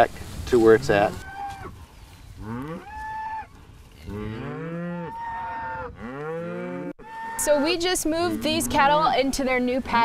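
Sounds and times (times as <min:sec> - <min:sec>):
cattle mooing: 0:02.4 - 0:09.6.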